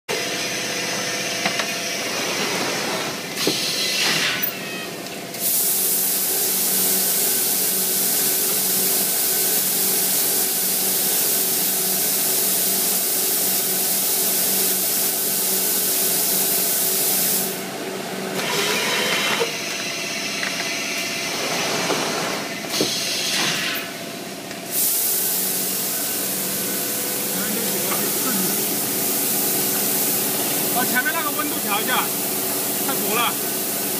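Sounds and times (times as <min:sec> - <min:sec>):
machine mechanical hum: 0:00.1 - 0:33.9
loud air hiss: 0:05.4 - 0:17.7, 0:24.6 - 0:33.9.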